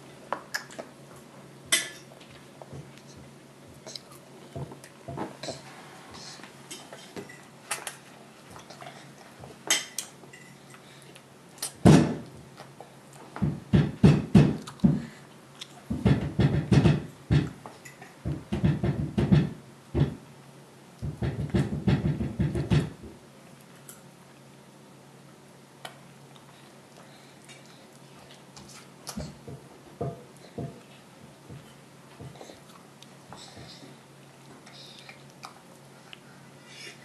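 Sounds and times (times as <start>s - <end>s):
hands banging on high-chair tray: 13.4s - 15.0s, 15.9s - 17.6s, 18.2s - 20.2s, 21.0s - 23.2s, 29.5s - 30.8s.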